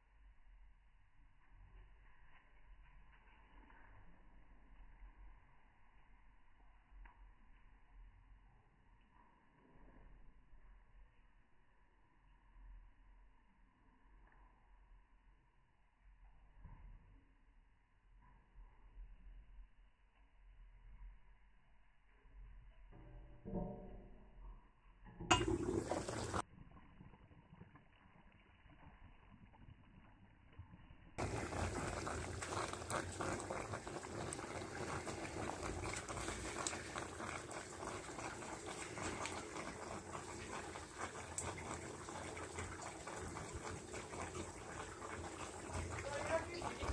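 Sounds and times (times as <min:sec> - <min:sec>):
stew bubbling in a pot: 0:25.2 - 0:46.9
coals crackling and popping: 0:25.3 - 0:46.9.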